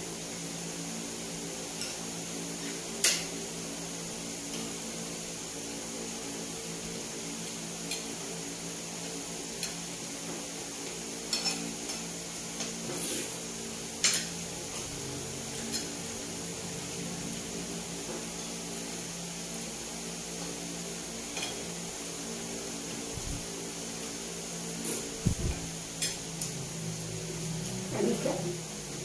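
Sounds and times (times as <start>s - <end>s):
utensils clinking on plate: 11.3s - 12.0s, 21.3s - 21.7s
low steady hum: 22.9s - 29.0s.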